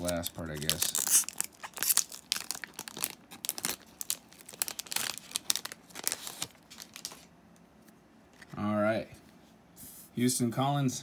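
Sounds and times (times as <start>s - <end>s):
foil wrapper crinkling and tearing: 0.0s - 7.3s.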